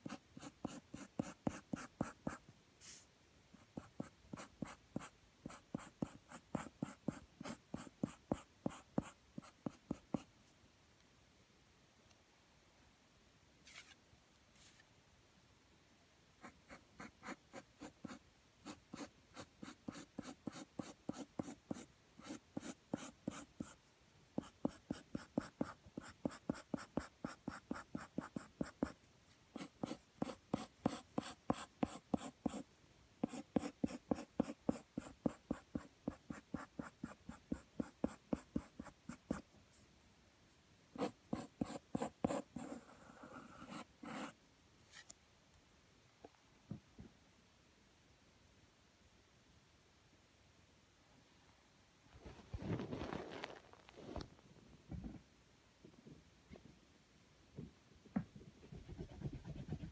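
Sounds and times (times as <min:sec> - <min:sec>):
pencil scratching on paper: 0:00.0 - 0:03.0, 0:03.6 - 0:10.3, 0:16.4 - 0:23.8, 0:24.4 - 0:29.0, 0:29.6 - 0:32.6, 0:33.2 - 0:39.4, 0:41.0 - 0:45.0, 0:58.8 - 0:59.9.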